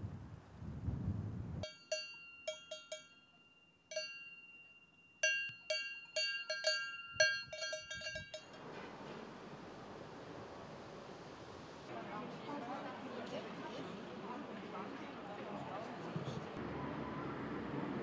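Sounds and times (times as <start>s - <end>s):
cowbell clanking: 1.6s - 8.7s
faint steady rushing noise: 8.4s - 16.6s.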